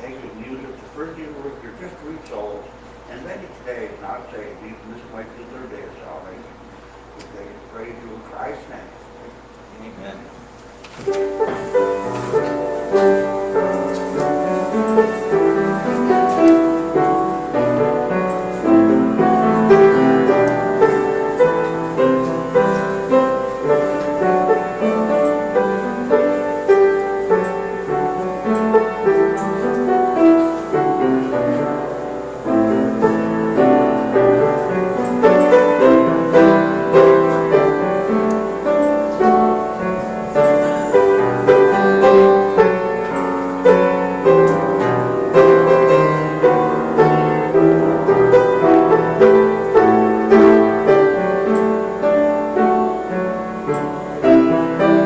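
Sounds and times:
piano playing: 0.0 - 55.0.

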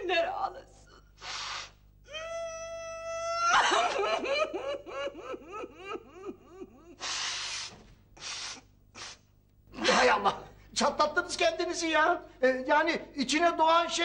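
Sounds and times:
woman sniffing: 1.2 - 1.8, 7.0 - 9.3
woman comic crying and sobbing: 2.1 - 7.1.

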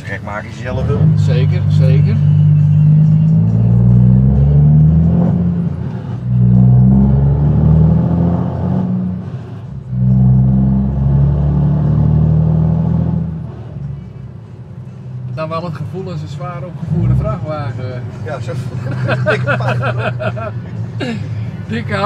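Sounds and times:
truck engine pulling away: 0.6 - 14.0.

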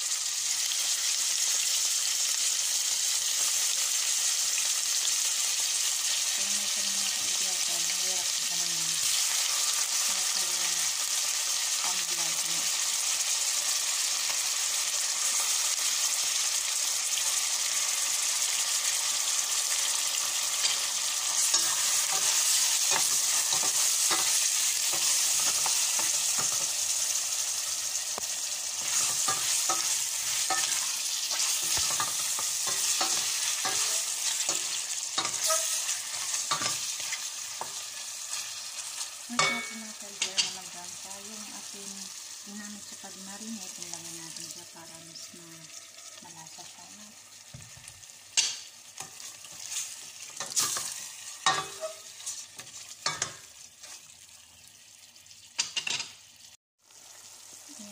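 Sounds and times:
chicken sizzling in hot oil: 0.0 - 57.9
wooden spatula scraping a pot: 28.8 - 37.8.

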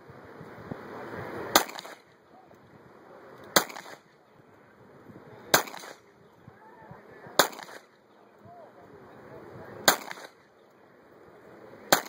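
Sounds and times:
pistol shots with echo: 1.5 - 2.1, 3.6 - 4.1, 5.5 - 6.1, 7.4 - 8.0, 9.8 - 10.5.

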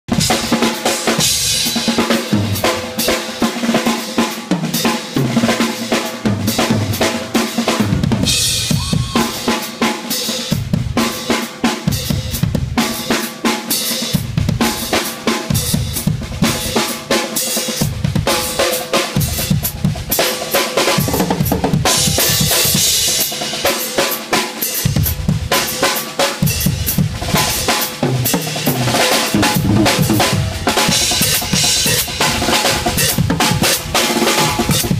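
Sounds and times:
fast drum solo: 0.0 - 34.9.

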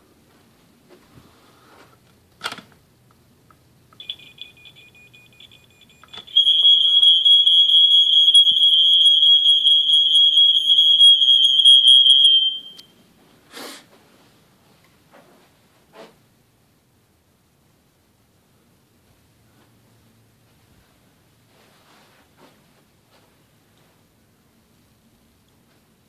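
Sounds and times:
smoke alarm high-pitched tone: 4.0 - 13.0.

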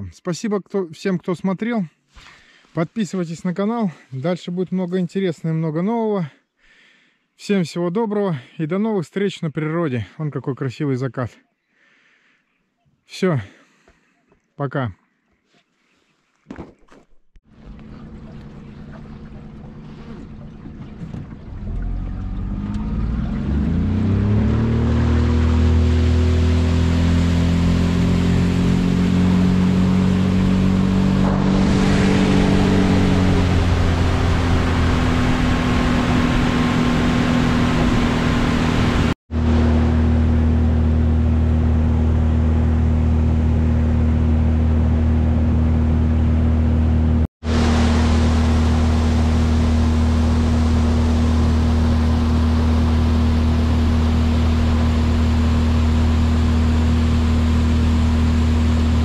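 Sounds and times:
outboard motor running: 17.4 - 59.0.

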